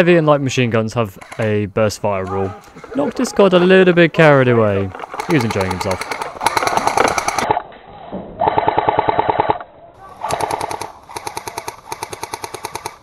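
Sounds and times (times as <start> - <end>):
airsoft machine gun bursts: 5.0 - 7.5, 10.2 - 13.0.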